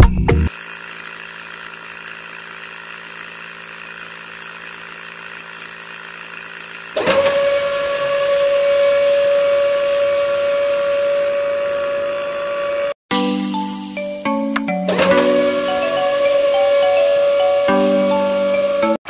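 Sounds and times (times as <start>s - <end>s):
geared motor high whine: 0.5s - 13.0s, 14.9s - 19.0s
toy motor humming: 0.5s - 13.0s, 15.0s - 19.0s.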